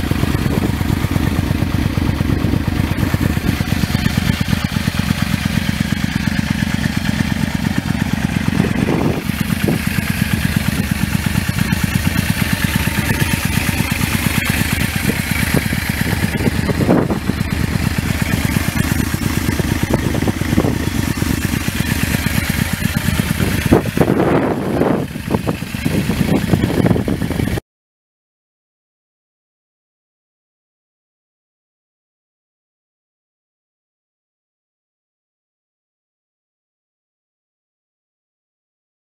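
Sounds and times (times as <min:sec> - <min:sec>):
motorcycle engine idling: 0:00.0 - 0:27.6.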